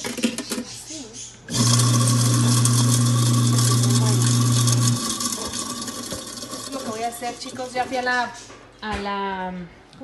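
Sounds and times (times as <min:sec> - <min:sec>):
garbage disposal motor humming: 0:01.5 - 0:08.1.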